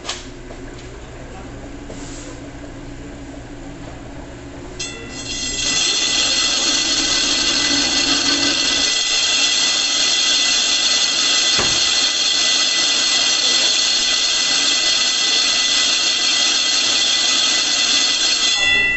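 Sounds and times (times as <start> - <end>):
slicer blade motor hum: 4.8 - 18.7
high-pitched grinding screech: 4.8 - 18.9.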